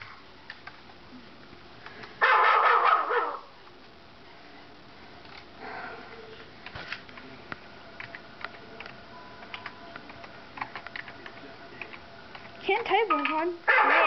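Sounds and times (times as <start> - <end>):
typing on computer keyboard: 8.0 - 12.5.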